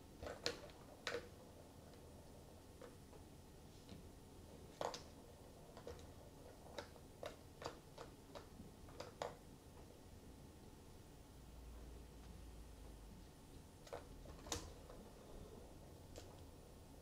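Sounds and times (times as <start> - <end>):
plastic clicks and taps of toy balls: 4.7 - 5.1, 6.7 - 9.4.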